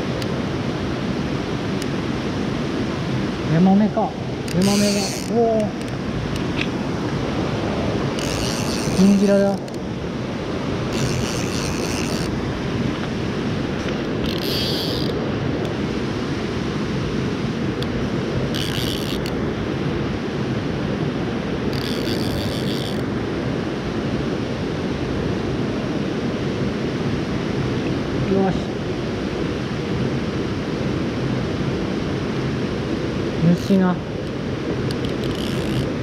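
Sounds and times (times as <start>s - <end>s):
stream rushing over stones: 0.0s - 22.0s
high-pitched rasping bursts: 4.5s - 5.4s, 8.2s - 9.6s, 10.9s - 12.4s.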